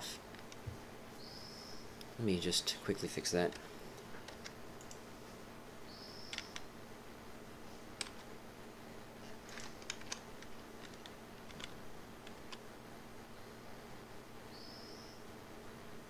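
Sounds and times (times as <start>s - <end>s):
faint low electrical hum: 0.0s - 16.0s
mouse clicks: 6.3s - 6.7s
computer keyboard clicks: 9.5s - 12.6s.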